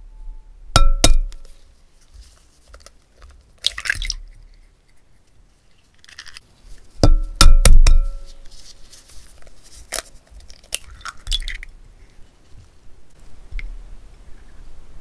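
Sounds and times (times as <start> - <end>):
egg cracking: 2.7 - 5.0, 5.9 - 6.4, 9.8 - 11.8
eggshell crunches and clicks: 9.9 - 11.7.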